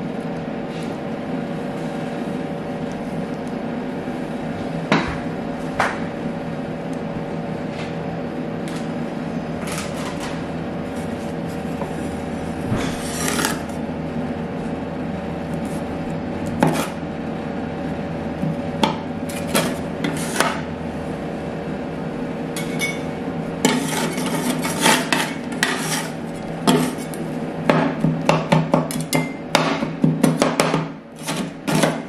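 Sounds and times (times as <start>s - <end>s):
machine hum: 0.0s - 30.1s
metal spatulas chopping and scraping: 16.6s - 17.0s, 19.3s - 20.6s, 23.6s - 27.2s, 28.4s - 32.0s.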